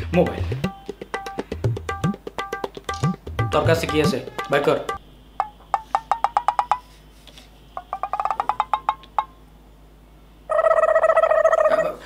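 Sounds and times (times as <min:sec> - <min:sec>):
woody percussion taps: 0:00.6 - 0:06.9, 0:07.8 - 0:09.3.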